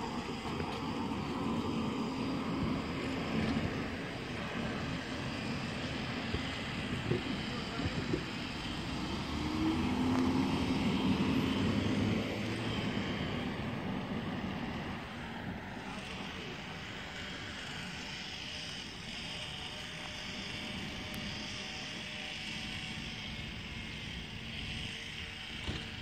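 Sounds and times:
car driving past: 9.0s - 14.0s.

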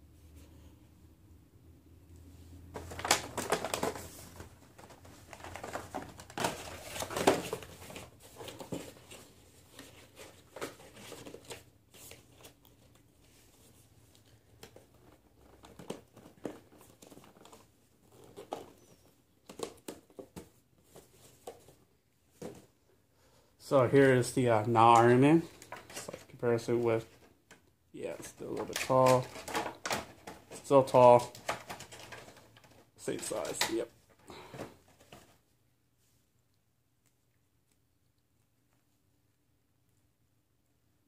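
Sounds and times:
plastic packaging crinkling: 2.8s - 13.0s.

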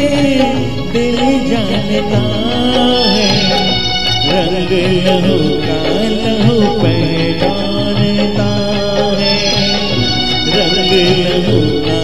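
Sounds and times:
man singing into a microphone: 0.0s - 12.0s
recorded backing music: 0.0s - 12.0s.

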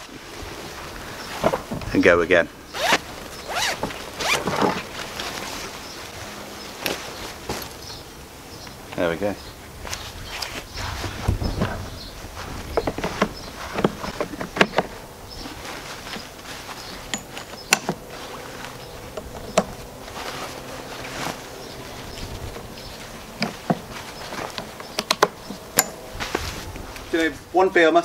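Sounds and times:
fabric bag rustling: 2.8s - 6.2s, 15.1s - 24.9s.

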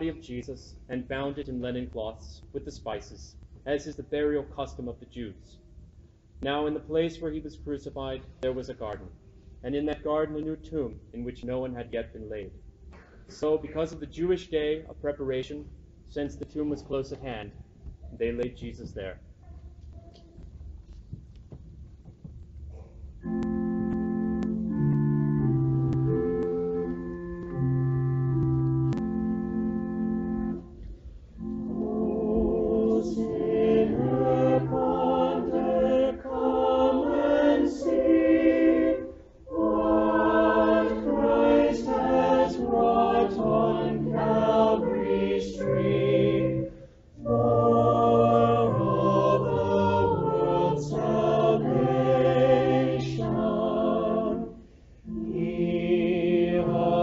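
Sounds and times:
organ playing sustained chords: 23.2s - 57.0s
church choir singing: 31.4s - 57.0s.

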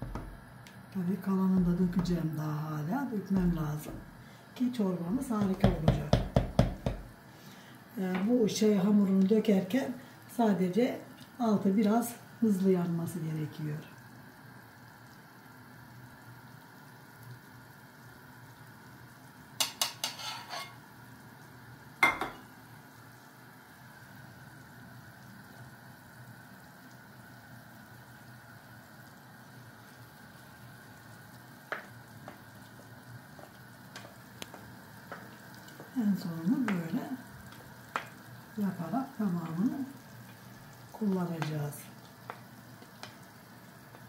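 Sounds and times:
soup bubbling in a pot: 13.6s - 44.0s.

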